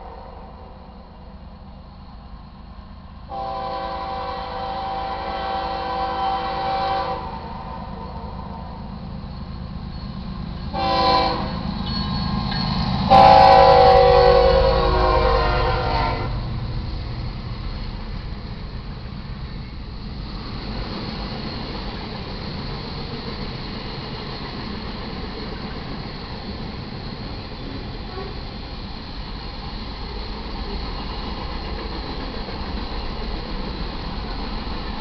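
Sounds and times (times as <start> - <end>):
train air horn blasts: 3.3 - 8.8, 10.7 - 11.7, 13.1 - 16.4.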